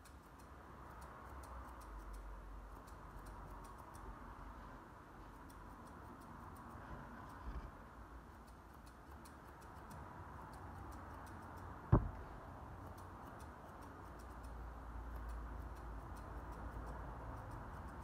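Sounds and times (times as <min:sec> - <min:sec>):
scissors snipping hair: 0:00.0 - 0:04.3, 0:05.3 - 0:07.4, 0:08.2 - 0:11.8, 0:12.8 - 0:18.0
sharp knock: 0:11.9 - 0:12.2.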